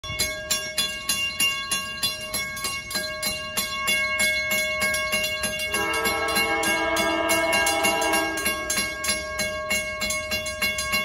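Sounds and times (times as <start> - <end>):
crossing warning bell ringing: 0.0 - 11.0
train air horn chord: 5.7 - 9.0.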